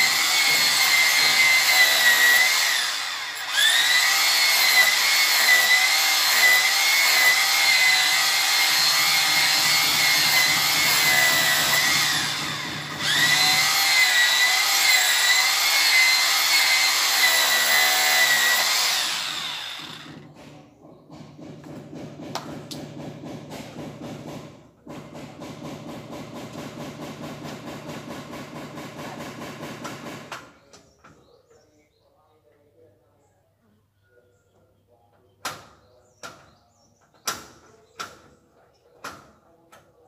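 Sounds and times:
electric drill whining: 0.0s - 20.2s.

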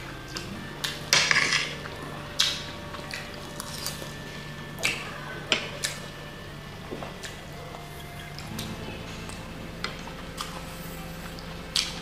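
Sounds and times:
cutlery scraping on plates: 1.2s - 1.8s.

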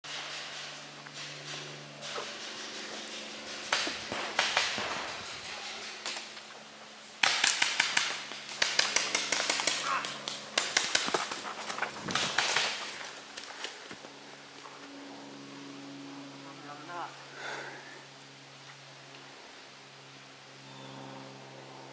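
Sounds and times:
paintball markers firing: 3.6s - 6.4s, 7.2s - 13.0s.

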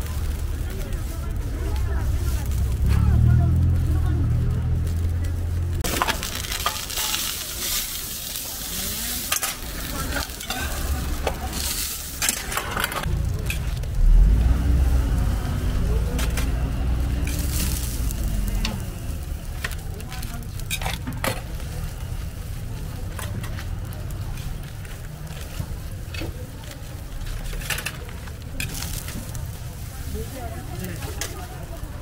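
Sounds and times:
low rumble: 0.0s - 5.9s, 13.0s - 20.6s
dough sizzling on griddle: 0.0s - 32.0s.

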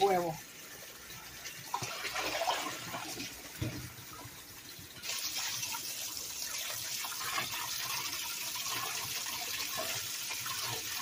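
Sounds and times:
tap running into bowl of water: 3.0s - 5.8s.

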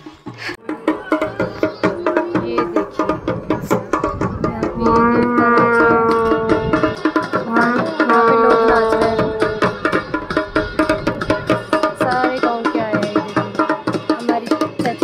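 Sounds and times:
fast steady drumming: 0.1s - 15.0s
long held melody notes: 4.8s - 9.8s.

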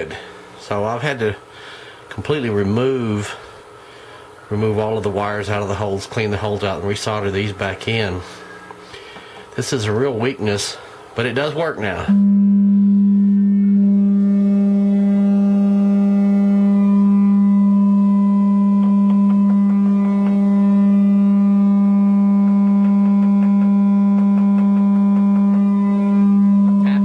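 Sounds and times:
sine test tone from amplifier: 12.0s - 27.0s.

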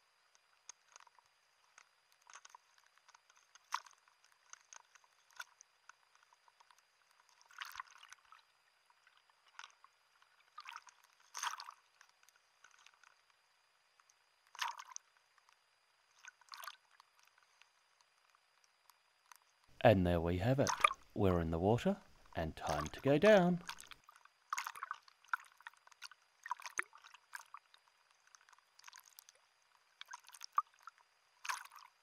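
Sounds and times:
sea water sloshing and splashing: 2.2s - 13.2s, 14.4s - 15.2s, 16.1s - 17.6s, 20.6s - 21.1s, 22.1s - 32.0s.

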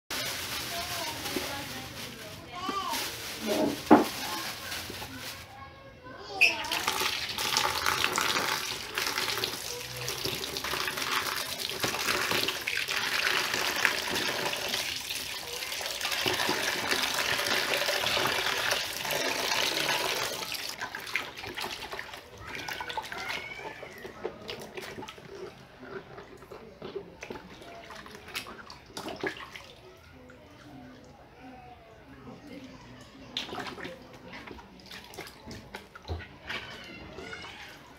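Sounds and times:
hands sloshing vegetables in water: 6.4s - 29.9s, 33.3s - 37.9s
tap water pouring into a basin: 6.4s - 31.2s, 32.5s - 37.9s.

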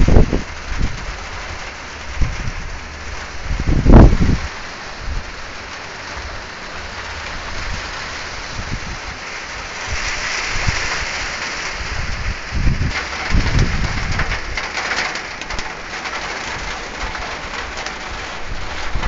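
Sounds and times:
wind buffeting microphone: 0.0s - 5.5s, 6.1s - 19.0s
rain falling: 0.0s - 19.0s.

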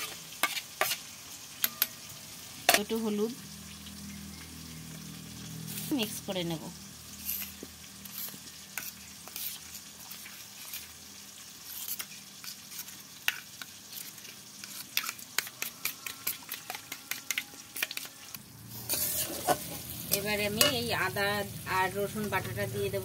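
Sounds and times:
spoon stirring in steel bowl: 0.0s - 1.0s, 7.2s - 11.0s, 11.6s - 20.8s.

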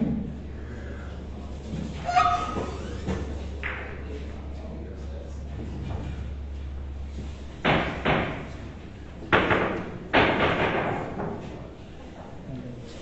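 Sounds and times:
billiard balls knocking: 2.2s - 4.0s, 7.6s - 8.7s, 9.3s - 11.5s.

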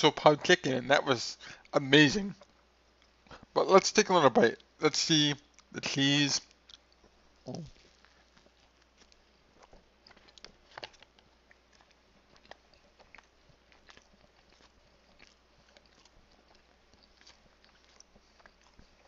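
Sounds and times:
faint chewing: 1.4s - 3.6s, 5.4s - 19.0s.

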